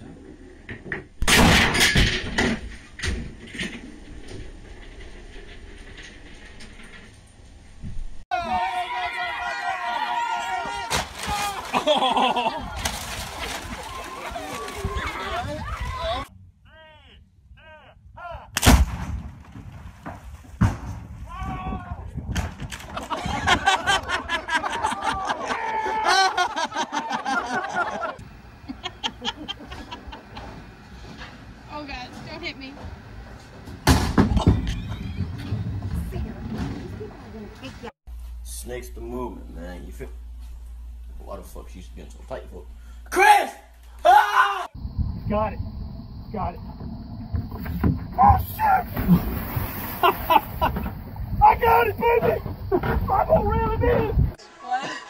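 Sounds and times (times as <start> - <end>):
people laughing loudly: 11.5 - 12.8, 23.0 - 30.6, 50.0 - 50.9, 54.4 - 55.0
gunpowder flaring with hissing rush: 44.9 - 52.9.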